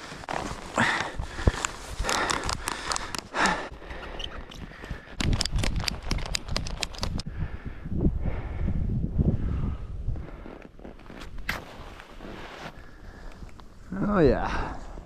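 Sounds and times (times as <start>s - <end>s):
snow crunching and scraping: 0.0s - 3.8s, 10.2s - 15.0s
heavy breathing: 0.0s - 5.4s, 7.2s - 10.7s
sharp crunching clicks: 1.4s - 7.3s
snowboard sliding rumble: 7.9s - 14.1s.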